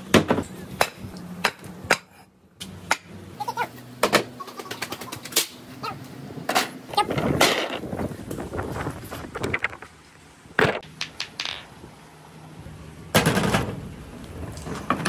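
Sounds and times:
concrete blocks clacking on concrete: 10.8s - 11.7s.

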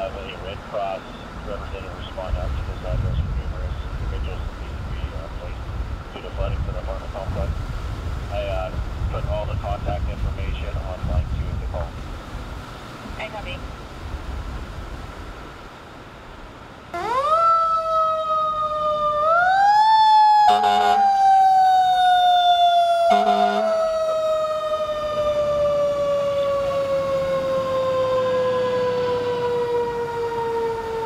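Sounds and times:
fire engine siren wailing: 17.0s - 31.0s
air horn blasts: 20.5s - 21.1s, 23.1s - 23.8s.

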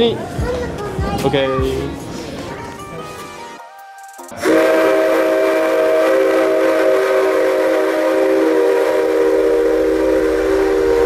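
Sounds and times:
steam locomotive whistle: 4.4s - 11.0s.

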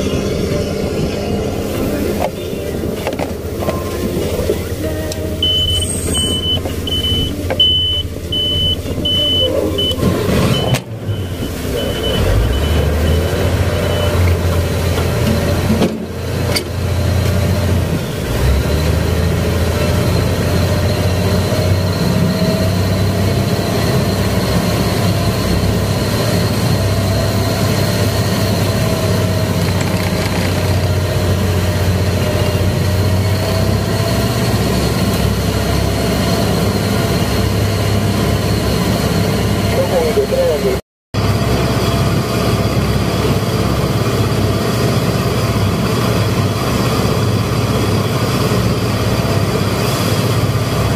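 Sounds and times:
water rushing along hull: 0.0s - 39.7s, 41.2s - 50.9s
boat engine running: 0.0s - 50.9s
short beeps: 4.9s - 14.2s.

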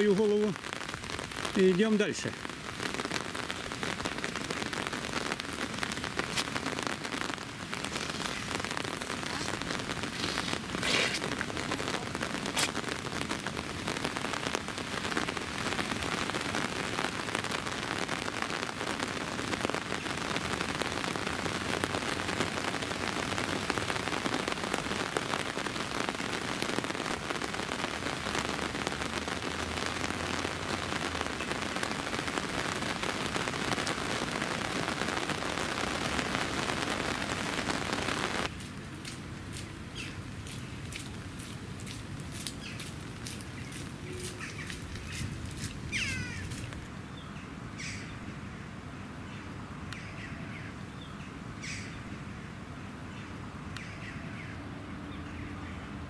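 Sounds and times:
rain on stone paving: 0.0s - 56.0s.

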